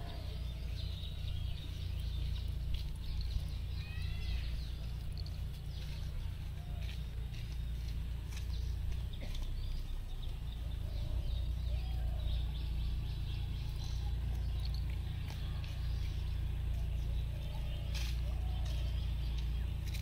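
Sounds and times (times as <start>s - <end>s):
small birds chirping: 0.0s - 20.0s
steady low rumble: 0.0s - 20.0s.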